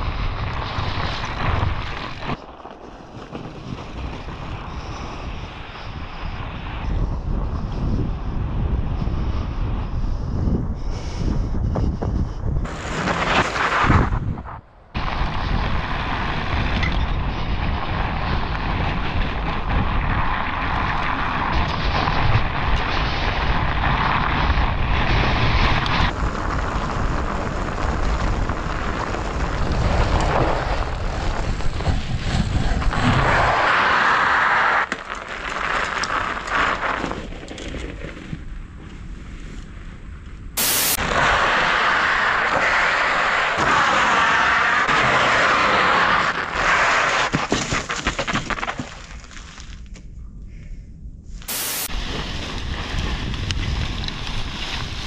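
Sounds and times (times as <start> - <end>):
wind buffeting microphone: 0.0 - 33.9, 50.0 - 55.0
tyres hissing on ice: 40.6 - 47.4, 51.5 - 52.6.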